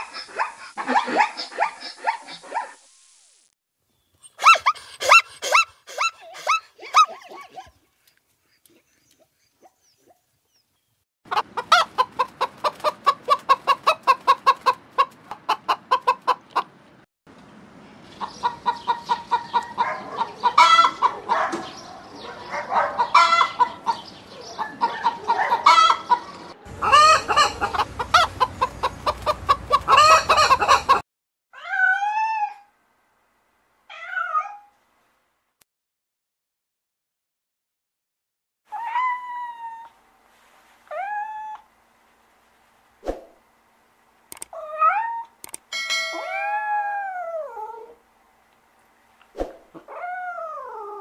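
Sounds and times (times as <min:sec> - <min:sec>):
hen clucking: 0:11.3 - 0:16.8, 0:18.2 - 0:21.7, 0:22.7 - 0:31.0
cat meowing: 0:33.9 - 0:34.7.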